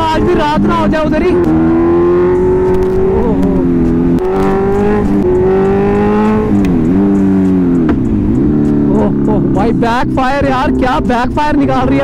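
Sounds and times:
motorcycle engine revving: 0.0s - 12.0s
exhaust backfire pops: 7.8s - 8.1s.

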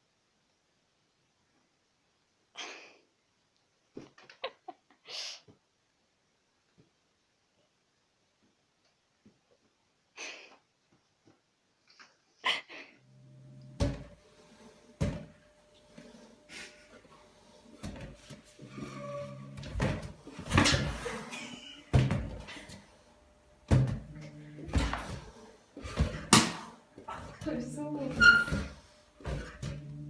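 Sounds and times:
low humming tone: 13.0s - 26.3s.

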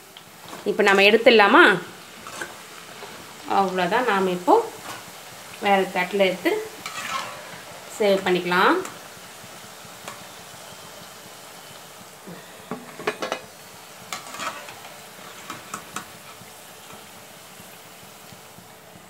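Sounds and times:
oil sizzling in a wok: 0.0s - 19.0s.

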